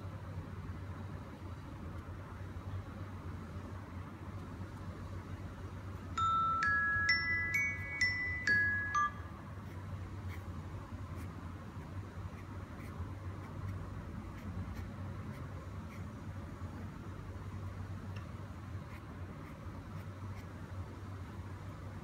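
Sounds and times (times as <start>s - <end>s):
steady low hum: 0.0s - 22.0s
bell-like chime melody: 6.2s - 9.5s.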